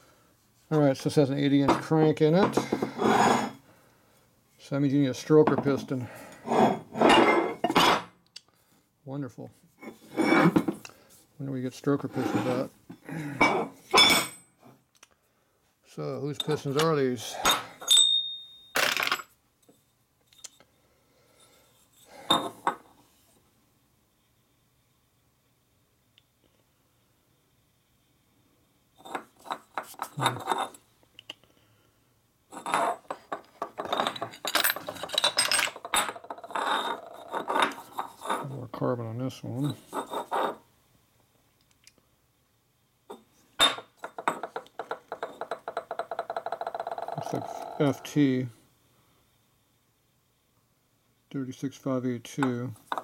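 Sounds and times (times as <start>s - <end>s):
metal clink: 17.4s - 19.3s.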